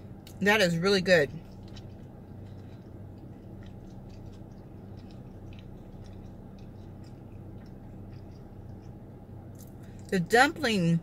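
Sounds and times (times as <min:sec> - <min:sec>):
low car cabin hum: 0:00.0 - 0:11.0
quiet chewing mouth clicks: 0:01.4 - 0:10.1.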